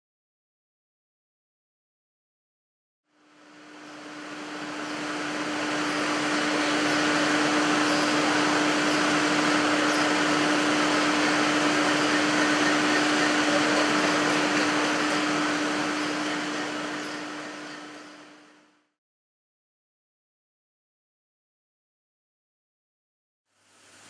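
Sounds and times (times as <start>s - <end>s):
machine whirring and humming: 3.1s - 18.8s.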